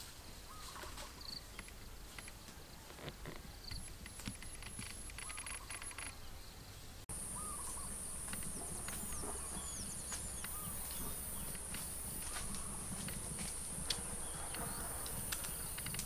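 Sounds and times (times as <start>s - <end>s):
falling bird calls: 0.3s - 16.0s
high insect drone: 7.1s - 16.0s.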